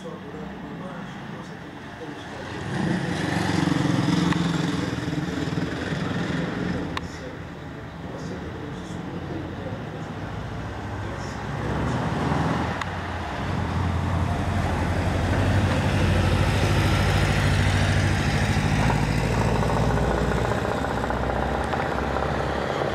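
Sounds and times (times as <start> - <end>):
low engine rumble: 0.0 - 22.9.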